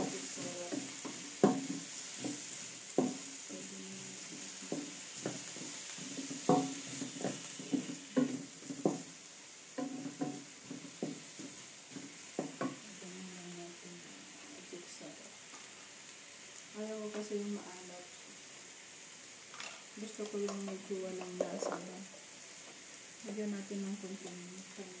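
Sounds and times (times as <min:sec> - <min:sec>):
spatula knocking against wok: 0:00.0 - 0:03.3, 0:04.2 - 0:09.1, 0:09.8 - 0:12.8
vegetables sizzling: 0:00.0 - 0:25.0.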